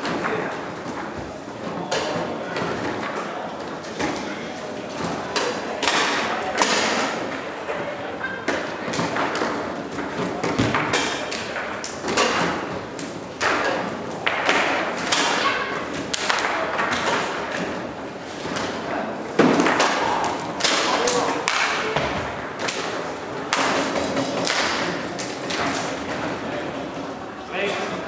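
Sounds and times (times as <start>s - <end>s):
table football rods clacking: 8.4s - 26.4s.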